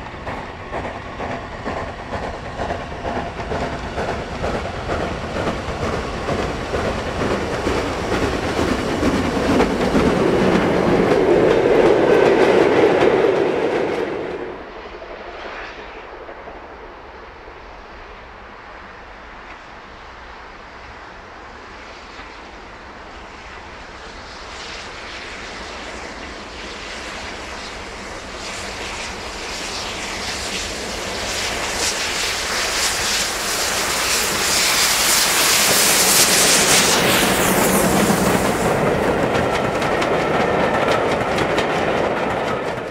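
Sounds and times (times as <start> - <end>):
train wheels clattering over rail joints: 0.0 - 14.2, 29.5 - 42.9
steam locomotive exhaust beats: 0.0 - 14.8, 19.0 - 42.9.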